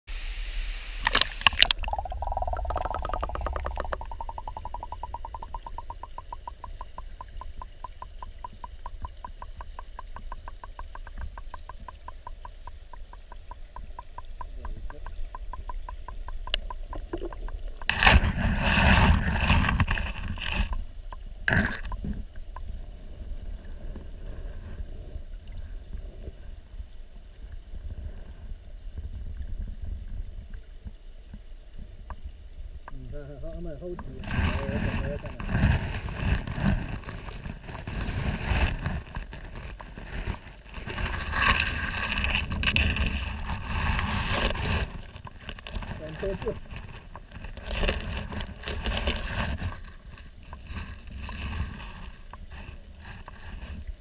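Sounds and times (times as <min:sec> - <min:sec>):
stream water hissing: 0:00.1 - 0:14.2
camera splashing into water: 0:01.0 - 0:04.2
rush of water: 0:01.0 - 0:26.1, 0:32.6 - 0:54.0
muffled underwater rumble: 0:01.0 - 0:54.0
fast even clicks: 0:01.1 - 0:17.9.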